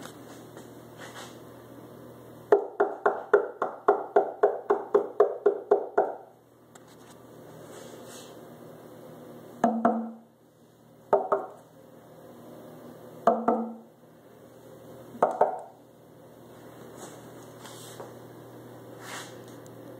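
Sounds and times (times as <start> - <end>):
knocking on wooden speaker cabinet: 2.5 - 6.2, 9.6 - 10.2, 11.1 - 11.6, 13.2 - 13.8, 15.2 - 15.6.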